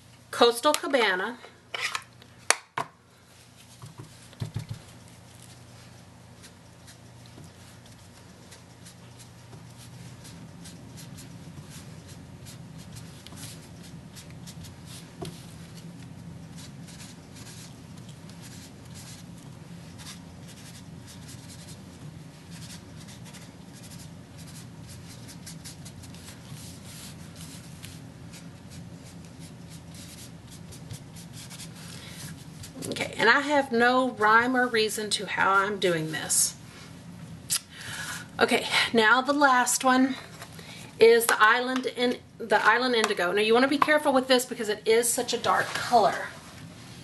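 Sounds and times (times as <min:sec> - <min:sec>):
sponge dabbing on paper: 0:03.4 - 0:32.8.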